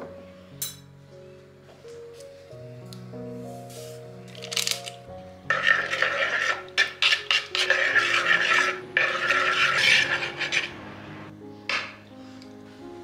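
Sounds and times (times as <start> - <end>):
metal spoon scraping bowl: 5.5 - 11.0.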